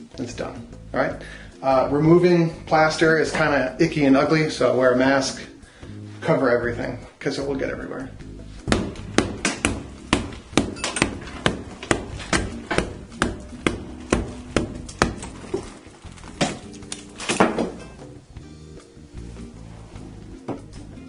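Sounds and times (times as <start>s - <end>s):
background music: 0.0s - 21.0s
hammer knocking on plaster wall: 8.7s - 15.3s.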